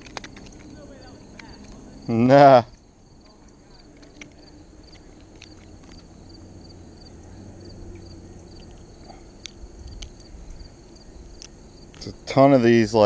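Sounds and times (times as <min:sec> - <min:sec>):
clicks and rustles from hands: 0:00.0 - 0:01.8, 0:02.7 - 0:06.1
insects chirping: 0:00.0 - 0:13.0.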